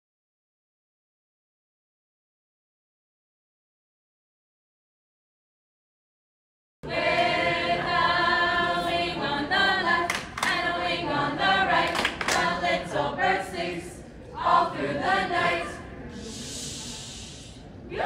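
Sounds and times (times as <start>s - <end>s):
group singing unaccompanied: 6.8s - 16.0s.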